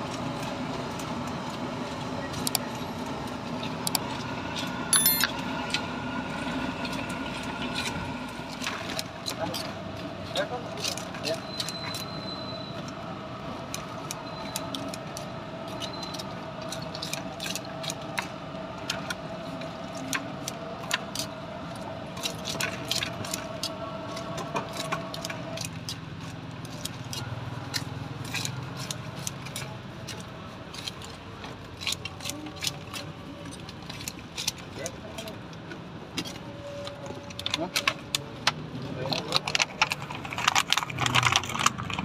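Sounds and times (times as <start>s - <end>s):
scissors snipping crisp food: 22.2s - 35.3s.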